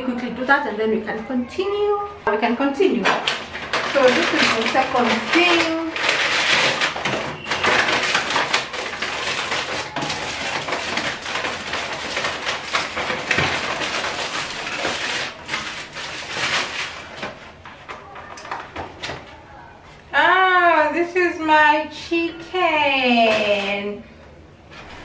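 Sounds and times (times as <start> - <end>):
aluminium foil crinkling: 2.8 - 19.5
paper bag rustling: 2.8 - 19.5.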